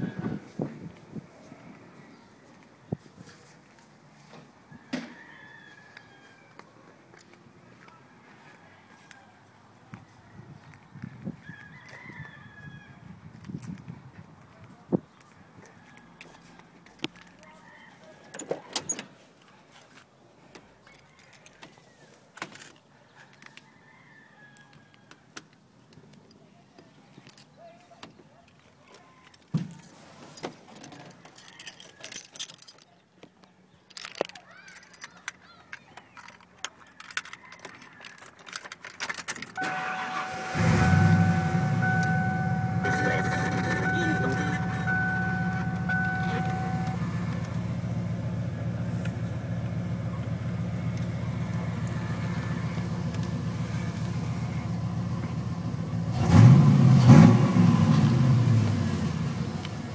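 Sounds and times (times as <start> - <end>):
keys jangling: 29.7 - 32.9, 33.9 - 39.6
truck engine starting and idling: 38.6 - 59.9
dashboard warning chime: 39.6 - 47.4
engine revving: 39.6 - 48.9, 56.0 - 59.8.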